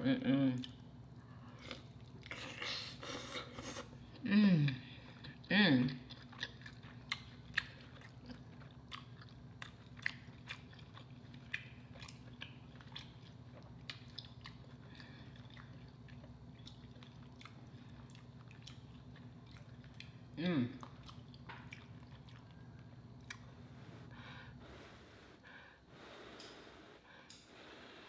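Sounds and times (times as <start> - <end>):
faint low hum: 0.0 - 28.0
chewing with mouth closed: 5.0 - 23.5.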